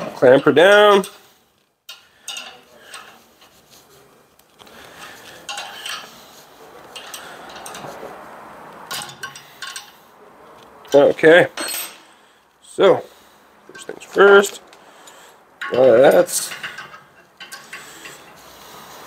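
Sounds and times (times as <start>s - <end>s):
faint steady scraping: 2.5s - 8.6s, 16.0s - 19.0s
small metal clicks and clinks: 8.9s - 10.0s.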